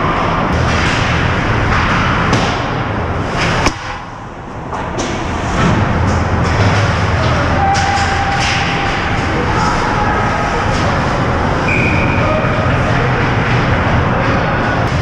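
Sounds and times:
hockey sticks clattering: 0.0s - 15.0s
sharp crack: 0.5s - 4.2s.

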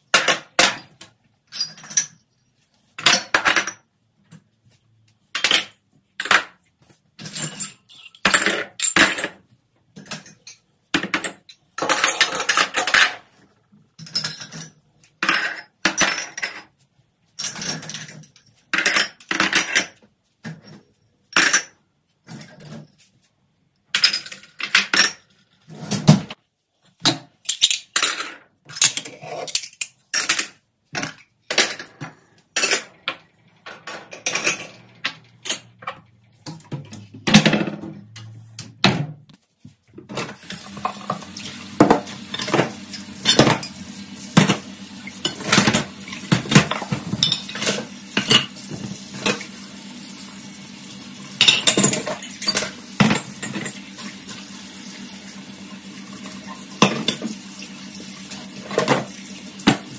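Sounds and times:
glassware and dishes clinking: 46.4s - 48.5s, 51.4s - 53.8s.

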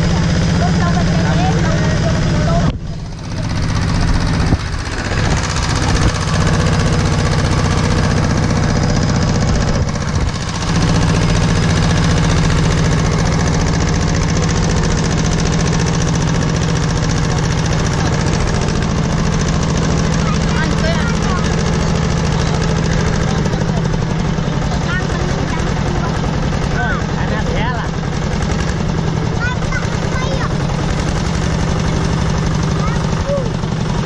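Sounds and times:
tractor engine running: 0.0s - 34.0s.

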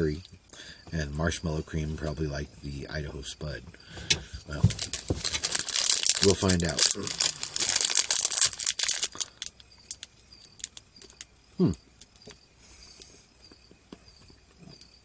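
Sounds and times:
biting and chewing: 4.1s - 12.4s
wrapper crinkling and tearing: 4.5s - 11.2s.

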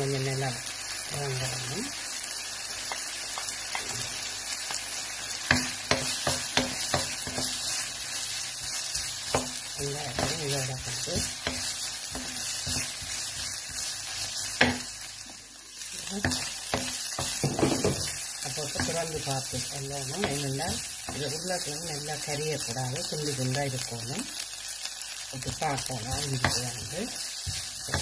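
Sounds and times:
meat and onion sizzling in a pan: 0.0s - 28.0s
wooden spatula scraping a pan: 5.9s - 14.9s, 25.5s - 28.0s.

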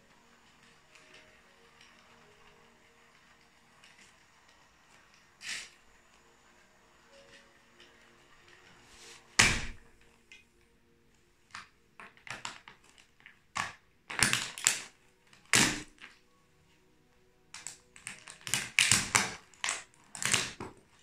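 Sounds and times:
plastic toy cracking under heels: 11.5s - 16.2s, 17.6s - 20.9s.

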